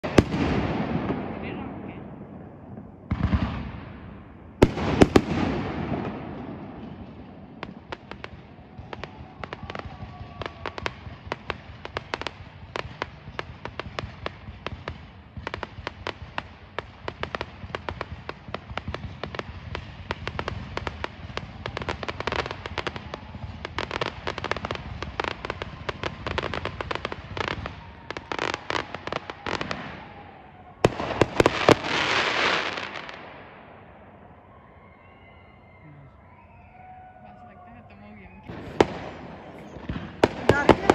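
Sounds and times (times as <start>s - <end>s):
loud firework bursts: 0.0s - 35.6s, 36.2s - 40.9s
rapid crackling pops: 38.3s - 40.9s.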